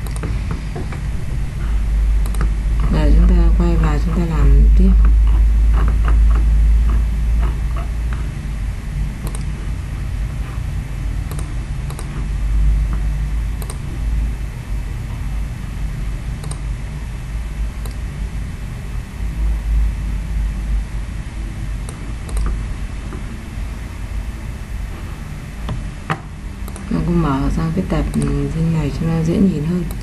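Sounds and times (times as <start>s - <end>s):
computer mouse clicking: 0.0s - 1.0s, 2.2s - 3.4s, 9.2s - 9.8s, 11.2s - 14.0s, 16.4s - 16.7s, 17.8s - 18.0s, 21.8s - 23.3s, 25.7s - 27.0s, 28.0s - 28.6s
steady low hum: 0.0s - 30.0s.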